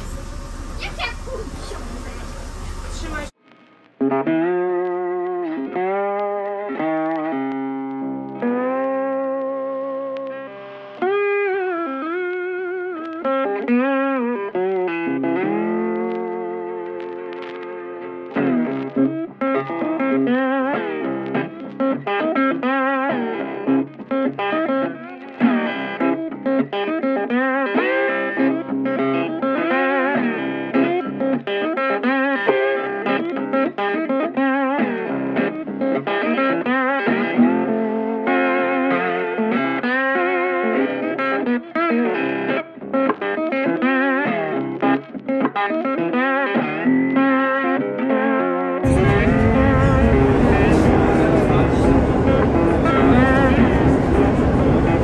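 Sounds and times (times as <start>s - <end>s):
sustained accompaniment: 0.0s - 3.3s, 48.8s - 55.0s
guitar playing bending notes: 4.0s - 55.0s.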